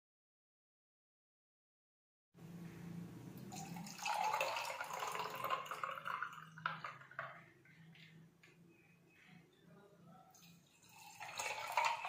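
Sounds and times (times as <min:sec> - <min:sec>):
juice pouring over ice: 0:03.5 - 0:07.4, 0:10.4 - 0:12.0.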